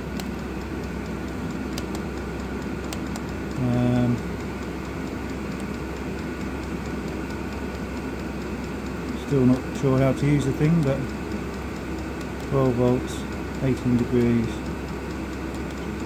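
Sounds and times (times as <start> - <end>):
air heater fan and burner hum: 0.0 - 16.0
fuel pump clicking: 1.7 - 4.6.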